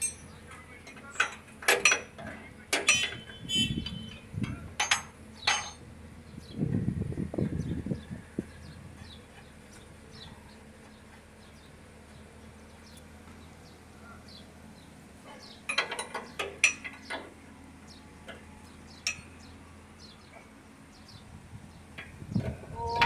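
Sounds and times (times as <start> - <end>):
spanner clinking on metal: 0.9 - 5.8
low steady hum: 22.4 - 23.0.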